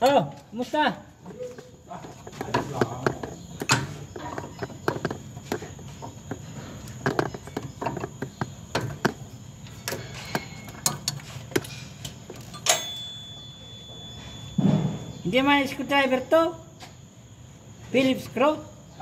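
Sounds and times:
hand tools clicking on metal: 0:01.5 - 0:13.0.

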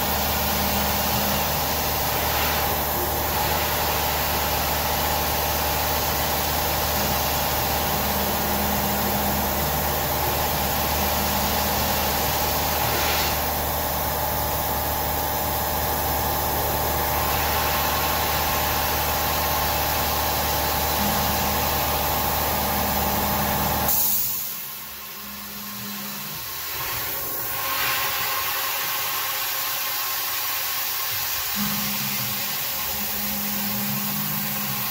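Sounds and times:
coolant spray hiss: 0:10.5 - 0:13.8, 0:23.9 - 0:24.7.

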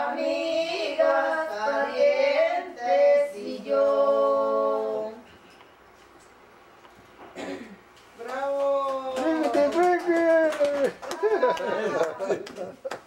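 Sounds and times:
women singing unaccompanied: 0:00.0 - 0:05.2.

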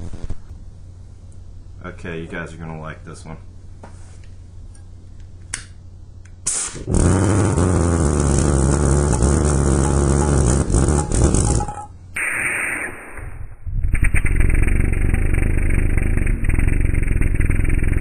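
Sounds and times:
pulse jet droning: 0:06.8 - 0:18.0.

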